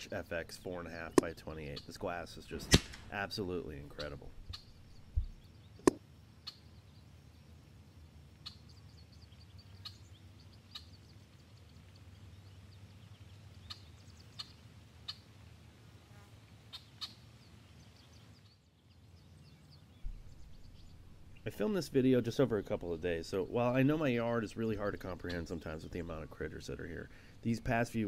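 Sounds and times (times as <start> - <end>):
small birds chirping: 0.0 - 15.3, 16.7 - 28.0
low steady hum: 17.4 - 28.0.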